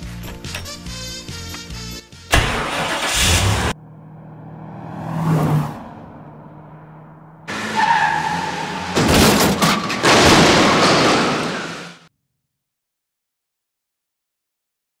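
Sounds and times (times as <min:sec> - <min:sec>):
car driving past: 0:02.7 - 0:09.1
tyres screeching: 0:07.4 - 0:12.0
car crash bangs: 0:07.5 - 0:12.1.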